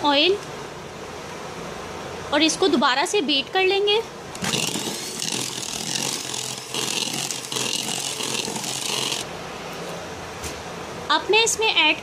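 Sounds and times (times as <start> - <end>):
electric hand mixer whisking batter: 4.4 - 9.3.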